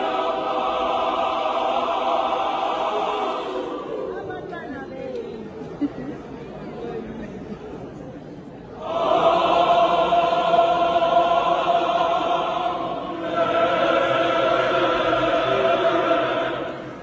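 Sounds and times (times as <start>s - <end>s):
mixed choir singing held chords: 0.0s - 4.5s, 8.7s - 17.0s.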